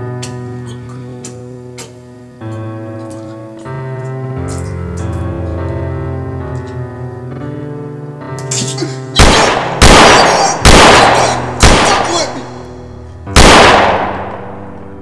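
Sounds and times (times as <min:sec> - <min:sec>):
soft keyboard music: 0:00.0 - 0:15.0
echoing pistol shots: 0:09.2 - 0:12.7, 0:13.4 - 0:14.8.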